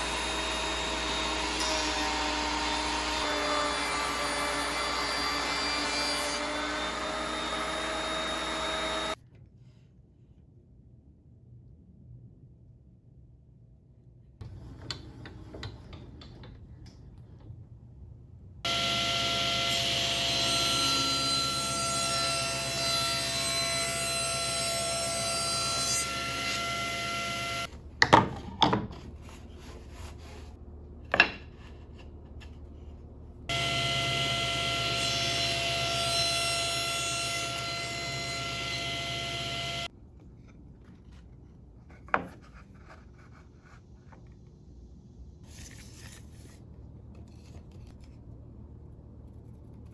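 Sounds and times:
table saw whining: 0.0 - 9.2, 18.7 - 27.7, 33.5 - 39.9.

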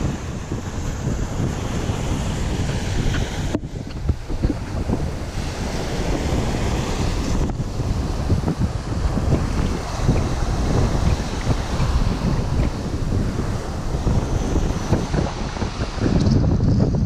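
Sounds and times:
small waves washing on sand: 0.0 - 16.5
wind buffeting microphone: 0.0 - 17.0.

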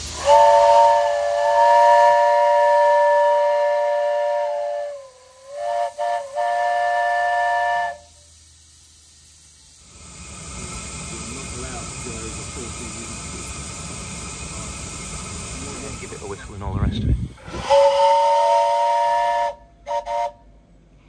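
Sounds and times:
steam whistle blasts: 0.0 - 8.4, 17.4 - 20.5
faint steam hiss: 0.0 - 21.0.

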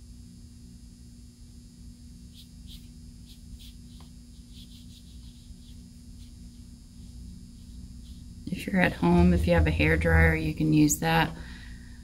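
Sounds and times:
paintbrush scratching paper: 2.2 - 10.0
low hum: 4.3 - 12.0.

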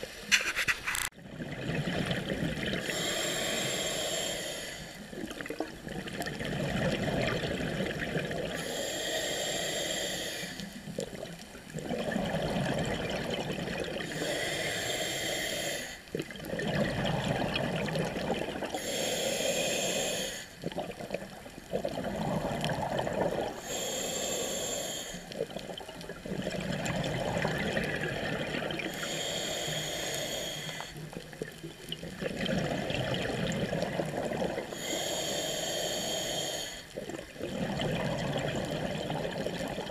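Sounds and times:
exhaled bubbles rushing: 1.2 - 2.9, 5.1 - 8.6, 11.0 - 14.1, 16.2 - 18.8, 20.6 - 23.6, 25.4 - 28.9, 31.1 - 34.8, 37.0 - 39.9
diver breathing through regulator: 2.8 - 5.0, 8.6 - 10.8, 14.0 - 16.1, 18.7 - 20.6, 22.3 - 25.4, 28.9 - 31.1, 34.6 - 37.0.

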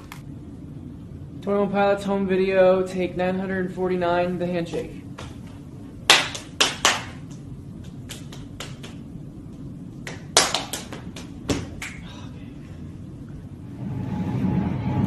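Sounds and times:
hands slapping and clapping: 5.2 - 9.1, 10.0 - 12.1.

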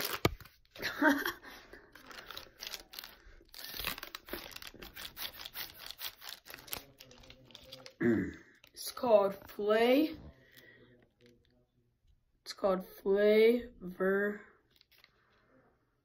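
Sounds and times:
plastic wrapper crinkling: 0.0 - 0.8, 1.8 - 8.9, 14.7 - 15.3.

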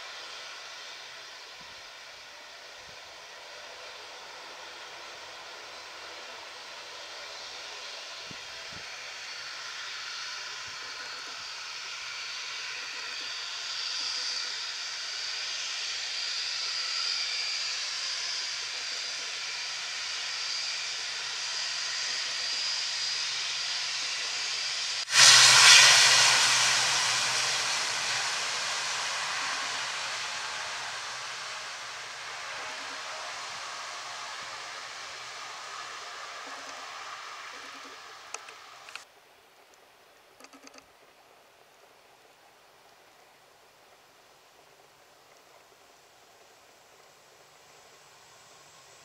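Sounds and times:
turboprop engines whining: 0.0 - 39.1.

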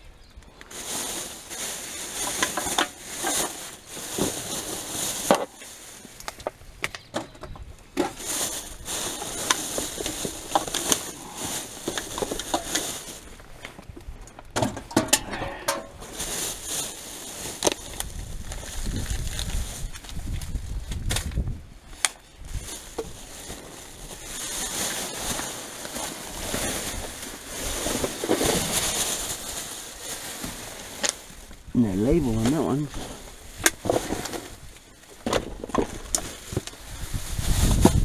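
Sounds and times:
plastic bags crinkling: 0.6 - 7.0, 8.0 - 38.0
knocks and clatters of items: 13.6 - 16.0, 35.2 - 36.7.

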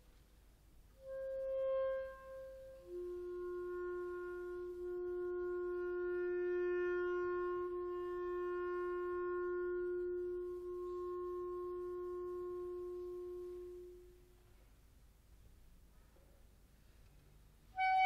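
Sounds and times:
clarinet holding long note: 1.0 - 14.3, 17.7 - 18.0.

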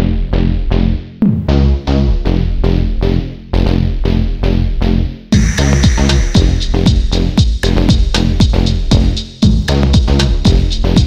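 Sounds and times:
electronic dance music: 5.3 - 7.7.

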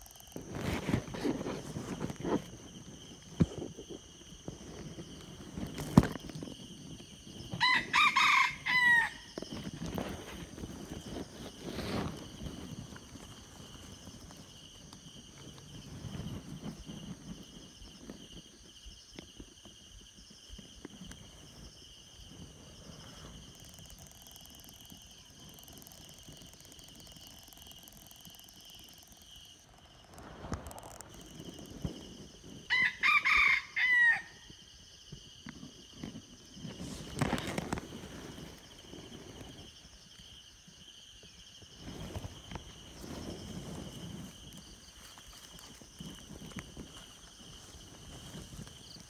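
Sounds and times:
high insect trill: 0.0 - 49.0
rooster crowing: 7.6 - 9.4, 32.7 - 34.6.

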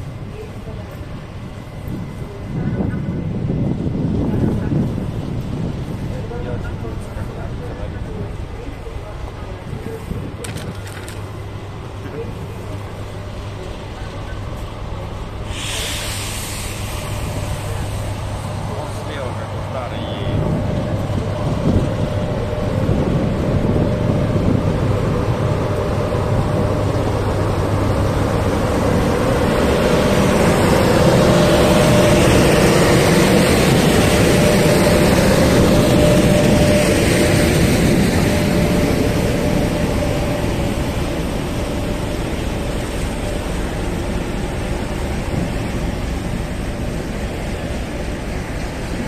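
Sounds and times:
electric locomotives passing: 0.0 - 49.0.

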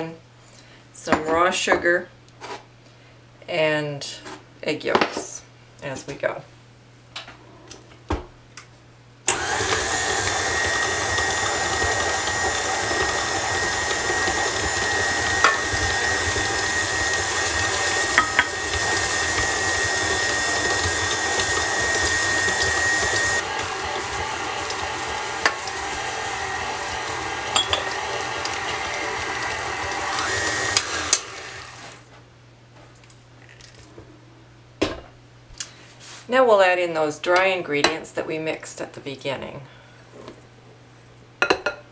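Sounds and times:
stand mixer motor whine: 9.3 - 32.1.

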